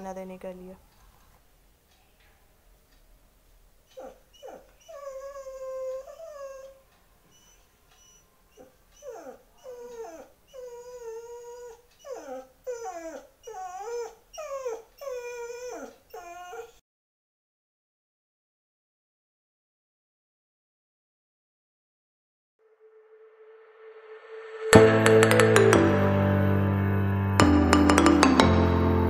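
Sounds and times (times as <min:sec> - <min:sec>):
dog whining: 0:03.9 - 0:16.8.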